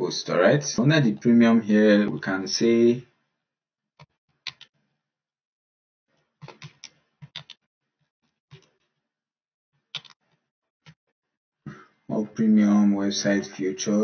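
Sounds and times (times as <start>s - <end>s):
keyboard typing clicks: 4.5s - 4.7s, 6.4s - 7.6s, 10.0s - 10.2s.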